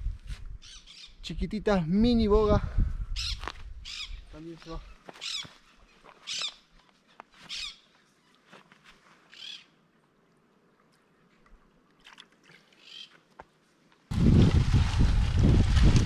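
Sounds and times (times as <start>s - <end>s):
bird calling: 0.6s - 1.2s, 3.2s - 8.6s, 9.3s - 9.8s, 12.7s - 13.3s.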